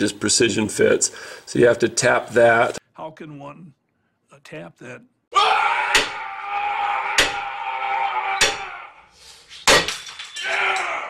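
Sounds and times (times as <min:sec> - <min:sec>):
hammer hitting metal: 0:05.9 - 0:06.2, 0:07.1 - 0:07.5, 0:08.4 - 0:08.7, 0:09.7 - 0:10.3.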